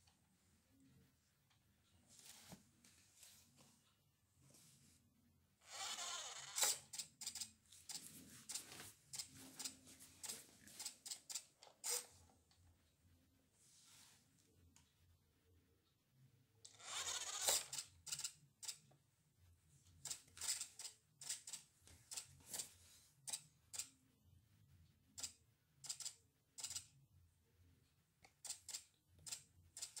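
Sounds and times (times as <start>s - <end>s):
toy car scuffing on tiles: 5.7s - 11.0s, 16.8s - 17.8s
toy car clicks: 5.8s - 9.3s, 16.8s - 18.8s, 20.0s - 22.3s, 25.2s - 26.9s, 28.3s - 30.0s.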